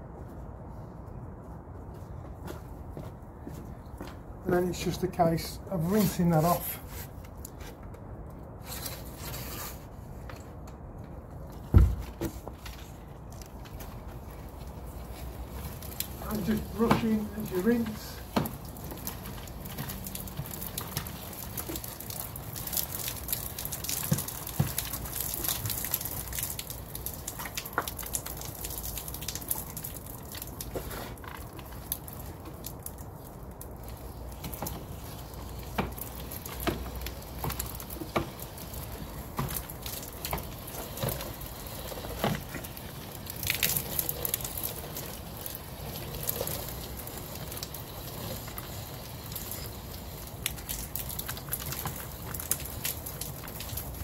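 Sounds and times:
water falling and splashing: 0:13.2 - 0:54.0.

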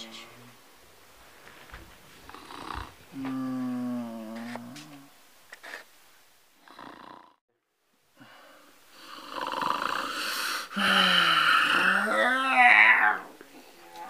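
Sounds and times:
man snoring: 0:02.3 - 0:05.1, 0:06.6 - 0:07.4, 0:08.9 - 0:12.6
faint breaths: 0:08.1 - 0:11.4.

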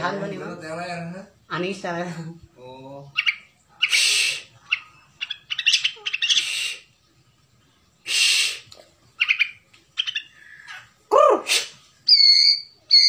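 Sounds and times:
bird singing: 0:09.2 - 0:11.0, 0:12.1 - 0:13.0.

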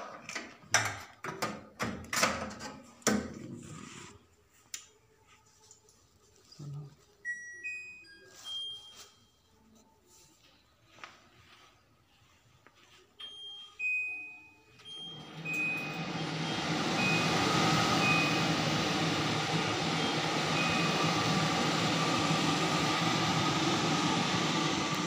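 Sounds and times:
range hood fan whooshing: 0:14.9 - 0:25.0.

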